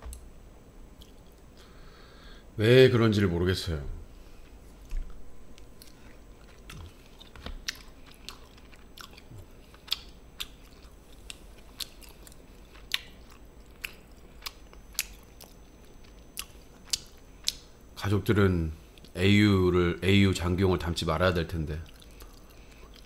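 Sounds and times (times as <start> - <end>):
person chewing crunchy food: 4.4 - 17.8, 21.8 - 23.0.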